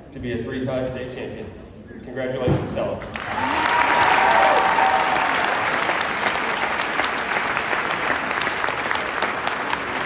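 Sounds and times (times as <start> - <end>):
crowd applauding: 3.1 - 10.0.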